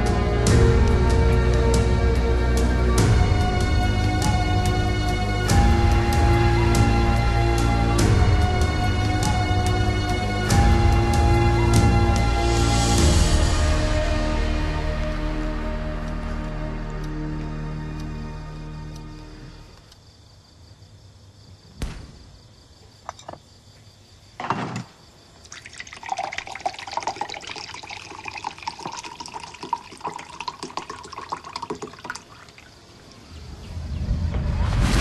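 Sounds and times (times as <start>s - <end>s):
thump: 21.8s - 22.3s, 24.4s - 24.9s
liquid pouring and trickling: 25.4s - 33.0s
low rumbling: 33.3s - 35.0s.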